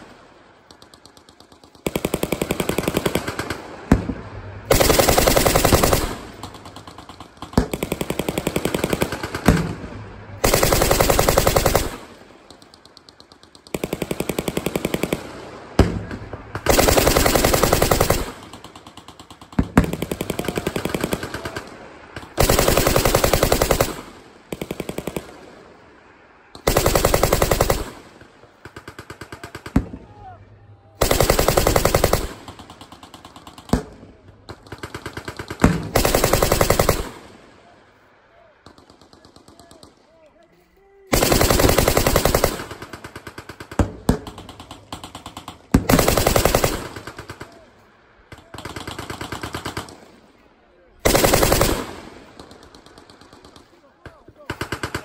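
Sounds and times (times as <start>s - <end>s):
machine gun bursts: 4.7s - 9.4s, 10.4s - 12.0s, 16.7s - 21.6s, 22.4s - 25.2s, 26.6s - 28.0s, 31.0s - 33.6s, 34.6s - 37.2s, 41.1s - 43.7s, 44.3s - 47.5s, 51.0s - 53.8s.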